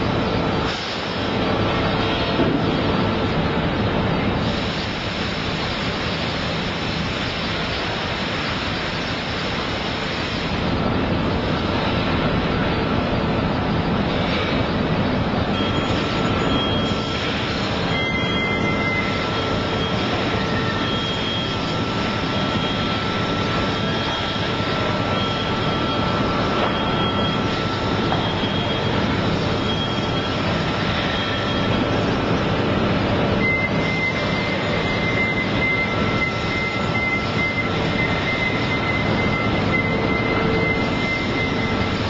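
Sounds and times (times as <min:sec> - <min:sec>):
forklift industrial drone: 0:00.0 - 0:42.0
lower beeps: 0:17.9 - 0:31.8, 0:33.4 - 0:42.0.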